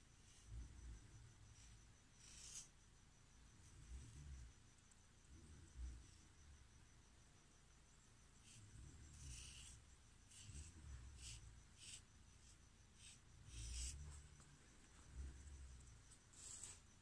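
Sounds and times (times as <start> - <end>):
marker scratching on skin: 1.5 - 2.7, 8.4 - 14.5.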